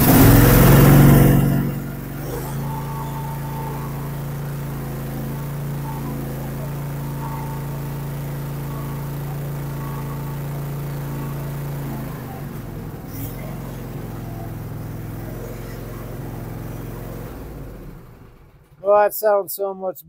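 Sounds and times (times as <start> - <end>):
lawn mower engine running: 0.0 - 19.4.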